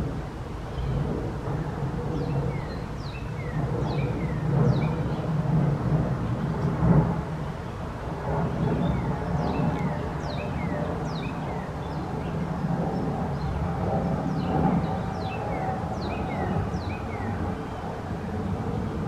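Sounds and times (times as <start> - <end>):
distant traffic rumble: 0.0 - 19.0
small birds chirping: 14.2 - 18.0.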